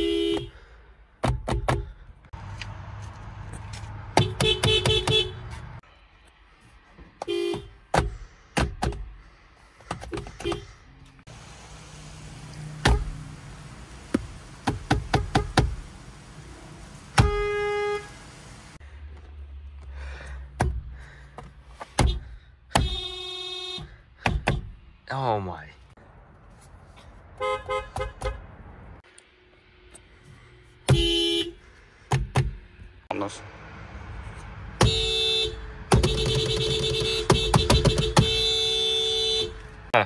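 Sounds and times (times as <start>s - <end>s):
car horn beeps and honks: 0.0s - 0.7s, 4.1s - 5.8s, 7.2s - 8.0s, 10.1s - 10.8s, 12.8s - 13.2s, 15.1s - 15.8s, 17.1s - 18.4s, 21.9s - 24.7s, 27.3s - 28.6s, 30.9s - 31.6s, 34.8s - 39.9s
knocks of horn pad pressed: 14.1s - 15.8s, 20.6s - 23.1s, 35.9s - 38.6s.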